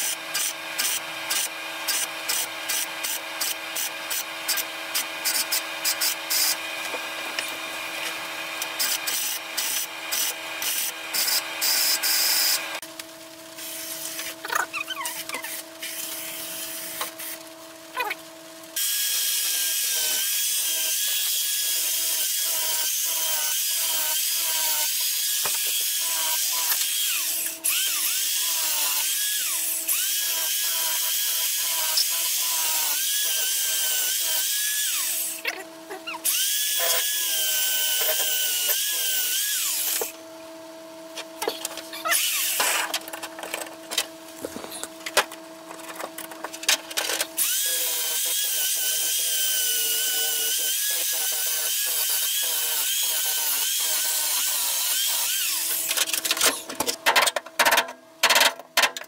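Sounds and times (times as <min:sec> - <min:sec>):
electric drill boring into steel: 0:00.0 - 0:06.8, 0:08.6 - 0:12.8, 0:18.8 - 0:35.4, 0:36.2 - 0:40.1, 0:42.0 - 0:42.9, 0:47.4 - 0:56.0
drill motor hum: 0:00.0 - 0:12.8, 0:18.8 - 0:40.2.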